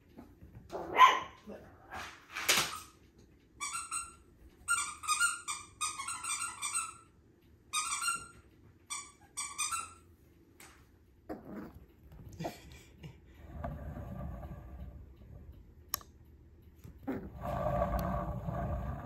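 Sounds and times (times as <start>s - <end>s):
puppy barking: 0.7s - 1.5s
squeaky dog toy squeaking: 3.6s - 7.1s, 7.7s - 10.1s.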